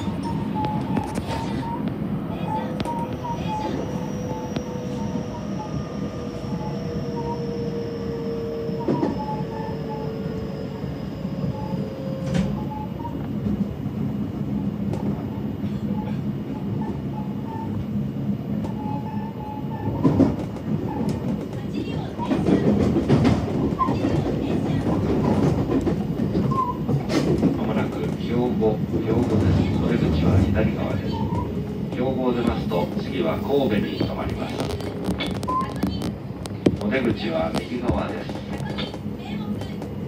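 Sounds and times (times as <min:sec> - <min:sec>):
train running noise: 0:00.0 - 0:40.0
electric train motor whine: 0:02.9 - 0:13.7.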